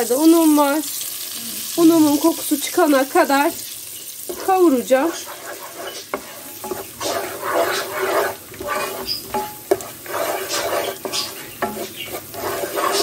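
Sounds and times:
butter sizzling: 0:00.0 - 0:13.0
wooden spoon scraping pot: 0:04.0 - 0:13.0.

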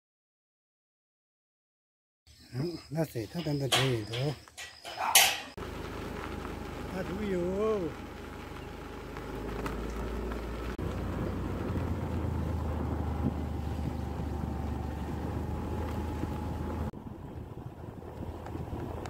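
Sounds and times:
motor scooter running: 0:05.6 - 0:19.0
wind noise on microphone: 0:10.7 - 0:19.0.

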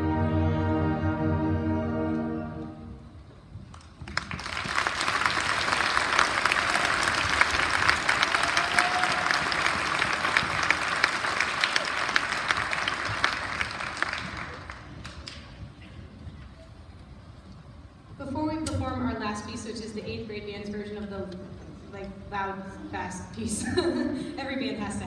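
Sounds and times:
audience applause: 0:03.7 - 0:15.8.

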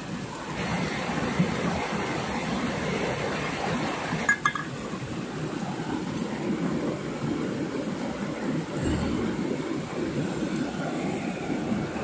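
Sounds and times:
stream flowing over rocks: 0:00.0 - 0:12.0.

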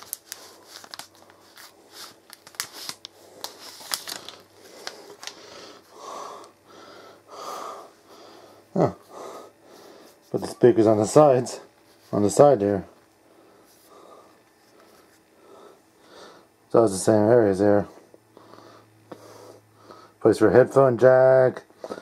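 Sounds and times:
plastic packaging rustling: 0:00.0 - 0:05.9.

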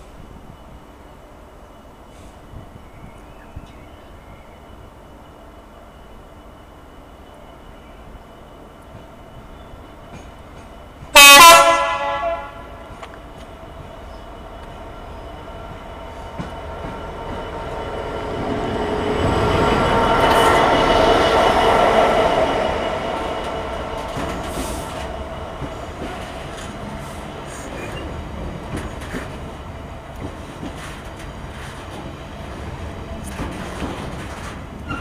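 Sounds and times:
diesel locomotive engine passing: 0:00.0 - 0:35.0
locomotive horn blast: 0:11.1 - 0:12.9
rumble of wagons rolling: 0:30.2 - 0:35.0.

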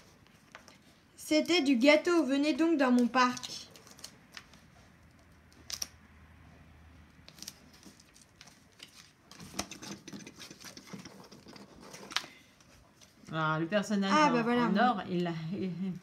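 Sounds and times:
paper rustling: 0:02.9 - 0:04.7, 0:07.3 - 0:13.4.

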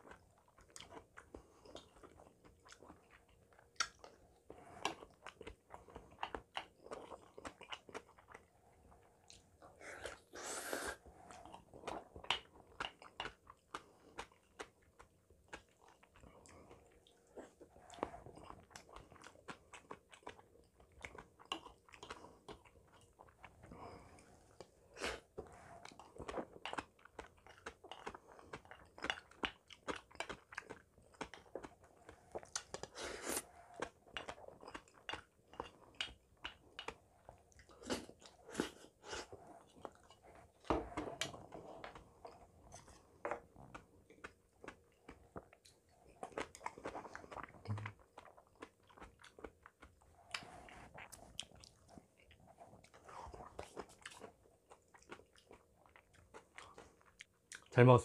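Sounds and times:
man chewing food: 0:00.0 - 0:57.7.

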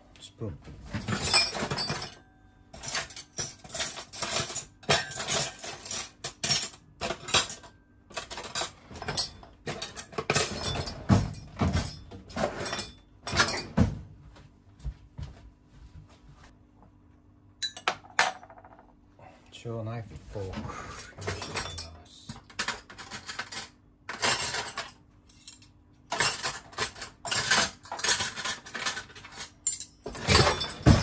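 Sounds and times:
metal cutlery clinking: 0:01.0 - 0:02.2, 0:02.8 - 0:13.7, 0:21.2 - 0:31.0.

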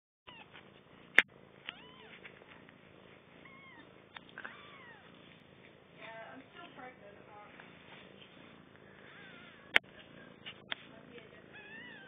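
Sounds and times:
kittens squeaking: 0:03.4 - 0:05.2, 0:09.0 - 0:10.7, 0:11.5 - 0:12.0.

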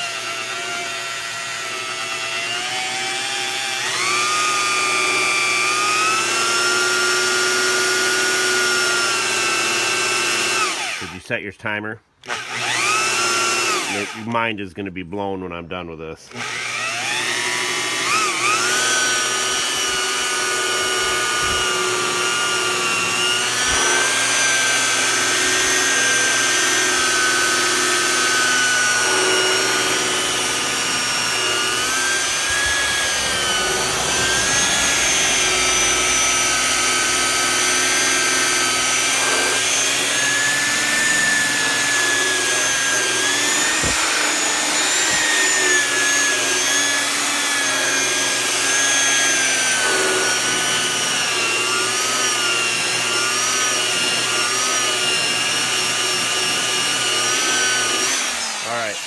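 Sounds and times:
electric polisher motor whine: 0:00.0 - 0:11.1, 0:12.2 - 0:14.2, 0:16.3 - 0:59.0.

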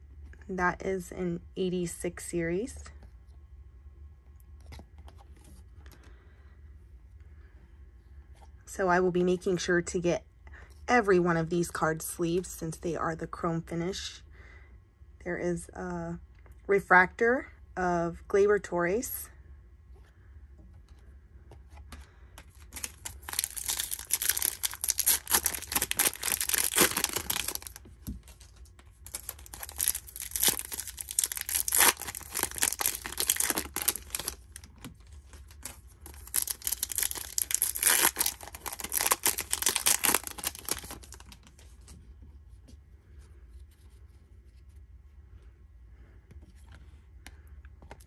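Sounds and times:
foil wrapper crinkling and tearing: 0:22.4 - 0:41.8.

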